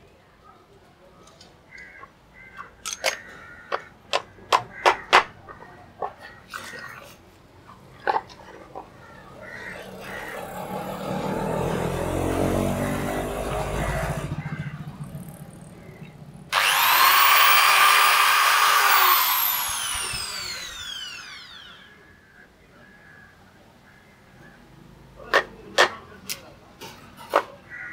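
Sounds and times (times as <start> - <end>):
power tool motor running: 9.7 - 14.7, 16.5 - 22.0
low mechanical rumbling: 10.1 - 21.9.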